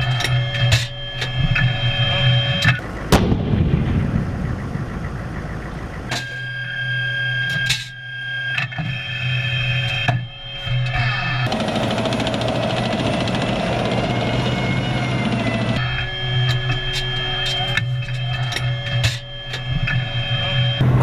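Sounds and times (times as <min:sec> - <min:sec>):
electrical hum and whine: 0:00.0 - 0:21.0
rumbling noise: 0:02.8 - 0:06.1
tank gun firing blast: 0:02.8 - 0:06.1.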